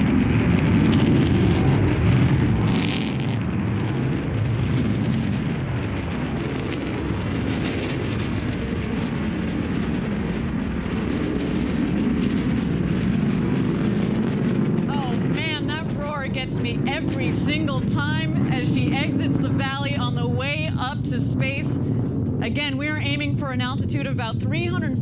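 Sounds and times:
rocket engine rumble: 0:00.0 - 0:25.0
sharp rocket crackles: 0:00.0 - 0:25.0.

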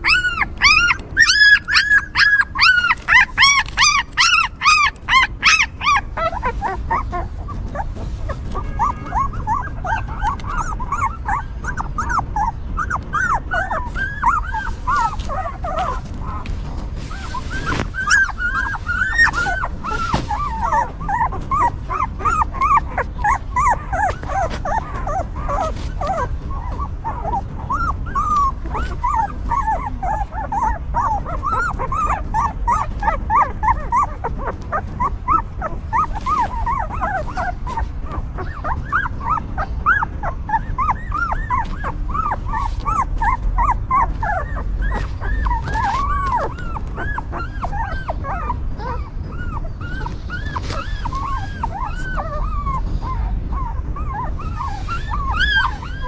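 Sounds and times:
puppies whimpering and whining: 0:00.0 - 0:56.0.

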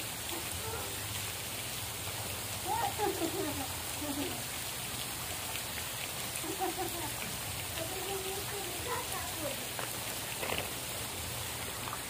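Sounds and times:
running water hiss: 0:00.0 - 0:12.0
voices calling: 0:02.5 - 0:04.6.

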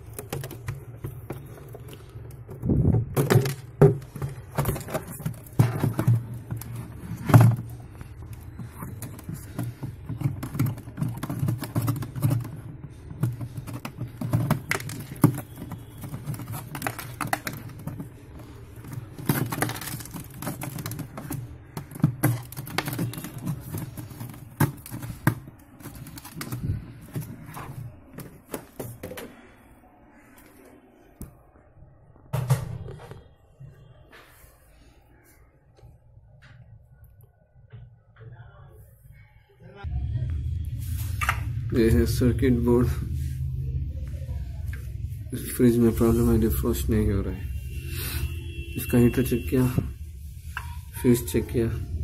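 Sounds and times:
plastic and ice clicking: 0:00.0 - 0:29.3
steady low hum: 0:39.8 - 0:48.8.

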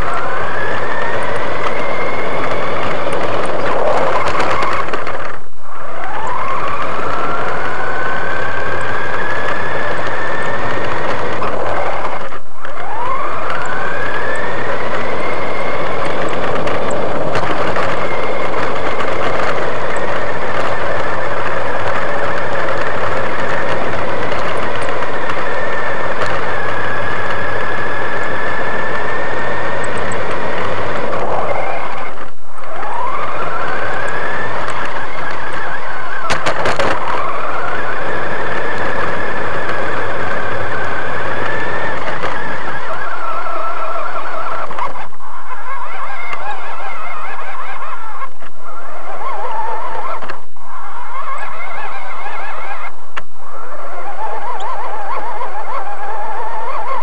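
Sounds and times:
toy truck motor whining: 0:00.0 - 0:57.0
sharp clicks: 0:06.0 - 0:45.0.

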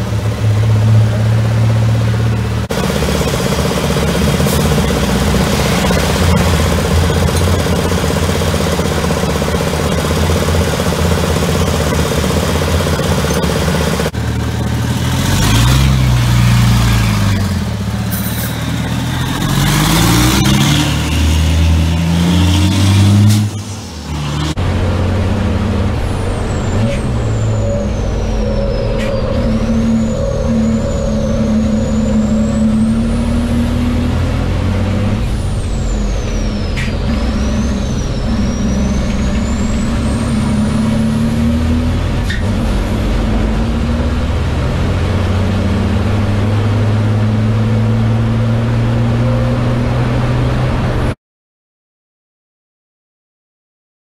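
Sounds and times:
diesel truck engine accelerating: 0:00.0 - 0:51.2
high whistle: 0:26.4 - 0:34.0, 0:35.4 - 0:41.1.

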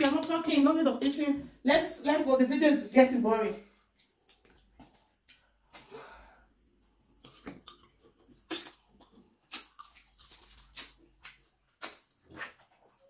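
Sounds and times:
mouth smacks and clicks: 0:07.2 - 0:13.0.

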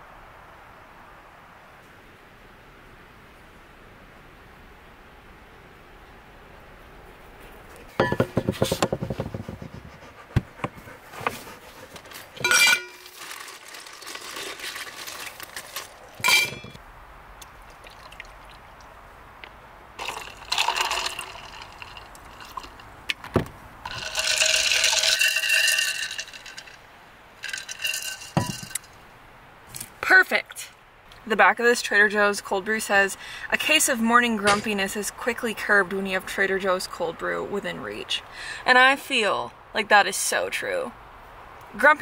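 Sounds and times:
containers clinking and knocking: 0:08.0 - 0:09.5, 0:12.4 - 0:16.8, 0:20.0 - 0:22.9, 0:23.9 - 0:26.8, 0:27.4 - 0:28.9
drink pouring into tumbler: 0:13.0 - 0:16.2, 0:17.6 - 0:18.6, 0:20.0 - 0:23.0, 0:23.9 - 0:26.8.

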